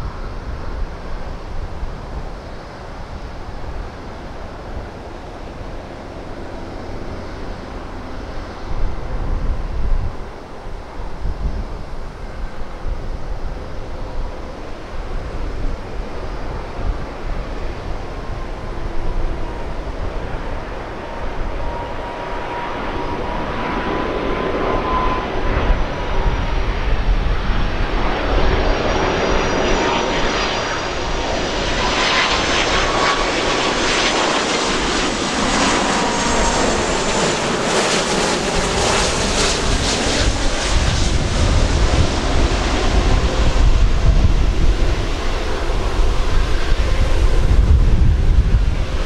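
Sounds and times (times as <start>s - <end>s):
jet engines whining: 0.0s - 49.0s
wind rumble on microphone: 0.0s - 49.0s.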